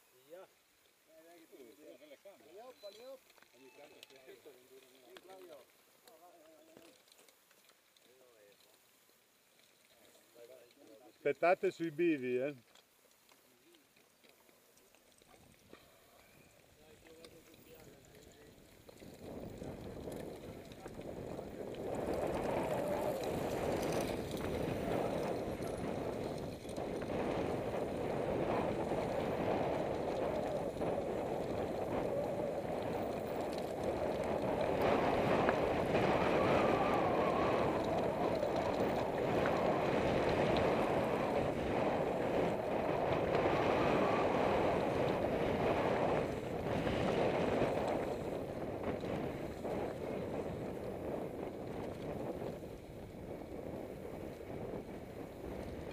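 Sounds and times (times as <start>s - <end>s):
bike clicks and rattles: 2.9s - 11.1s, 12.6s - 55.9s
tyres rumbling over dirt: 15.4s - 55.9s
wind rush over microphone: 19.0s - 55.9s.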